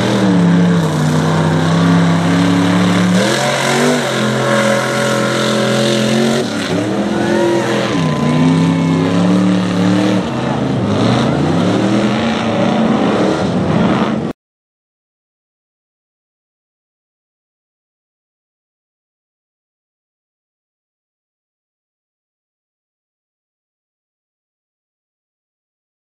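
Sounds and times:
truck engines revving: 0.0 - 14.4.

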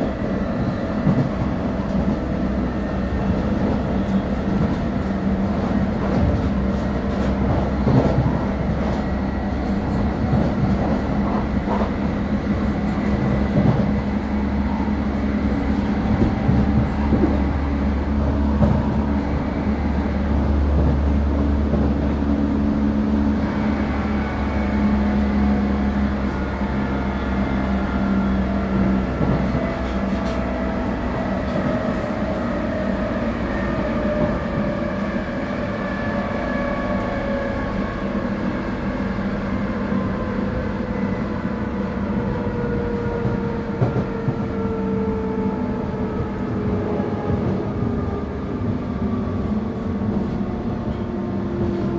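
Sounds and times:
train wheel and track rumble: 0.0 - 51.9.

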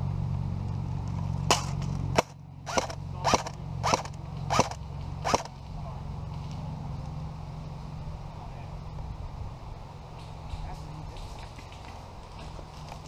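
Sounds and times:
airsoft pistol shots: 1.5 - 5.5.

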